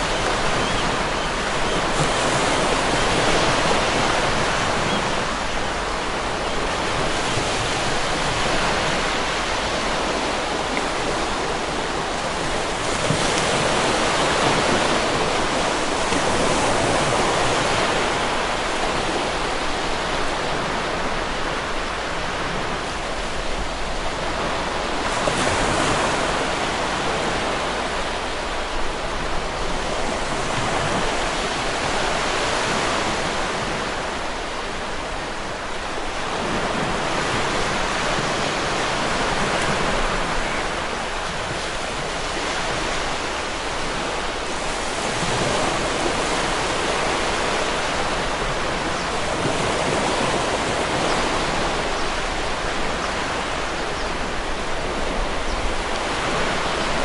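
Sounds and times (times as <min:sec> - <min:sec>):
waves breaking on rocky shore: 0:00.0 - 0:57.0.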